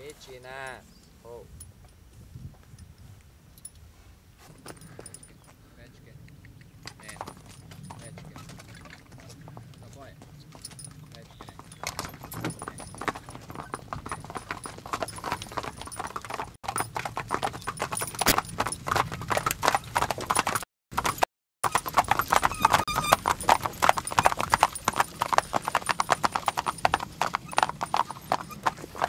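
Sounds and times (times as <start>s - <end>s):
horse hooves clip-clopping on asphalt: 6.3s - 29.0s.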